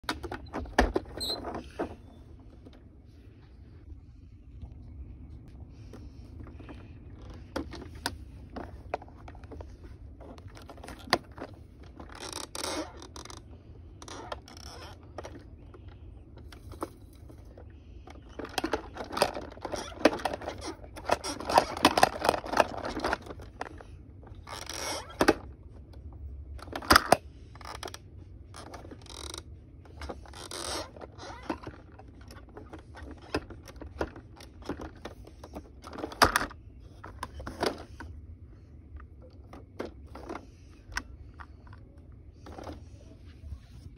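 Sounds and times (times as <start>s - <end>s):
plastic toy scraping and rattling: 0.0s - 2.7s, 6.4s - 25.6s, 26.6s - 38.2s, 39.1s - 41.8s, 42.4s - 43.9s.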